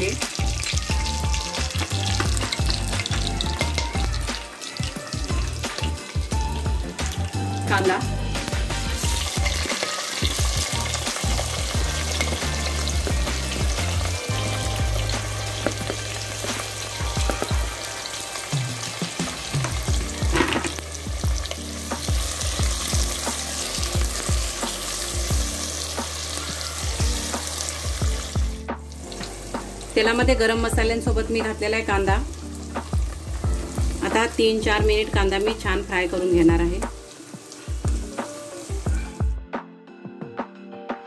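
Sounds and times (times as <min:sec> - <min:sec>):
onions sizzling in hot oil: 0:00.0 - 0:39.4.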